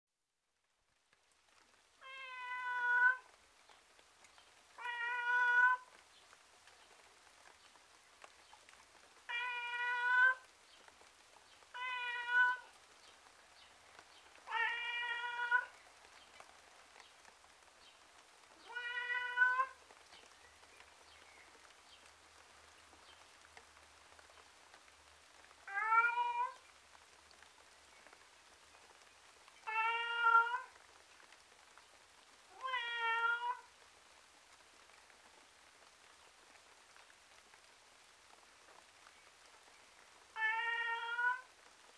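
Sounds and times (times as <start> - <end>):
faint background hiss: 0.3 - 41.9
cat meowing: 2.0 - 3.3, 4.8 - 5.9, 9.3 - 10.4, 11.8 - 12.7, 14.5 - 15.7, 18.6 - 19.8, 25.6 - 26.6, 29.6 - 30.8, 32.5 - 33.7, 40.4 - 41.5.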